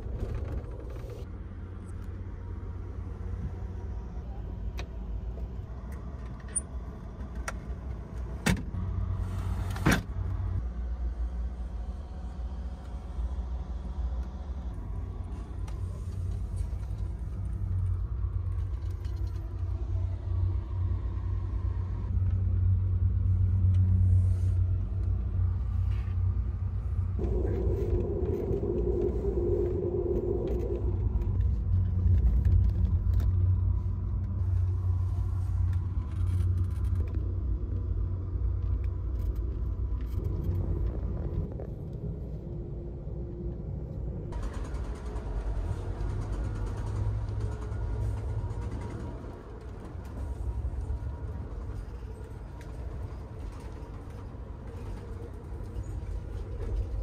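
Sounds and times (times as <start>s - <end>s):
train car rumbling: 0.0s - 57.0s
humming tone: 14.7s - 37.2s.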